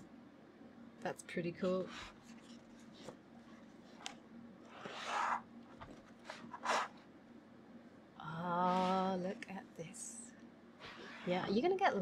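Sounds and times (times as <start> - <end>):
paper pages rustling: 2.2 - 6.9
paper swishes: 4.7 - 5.4.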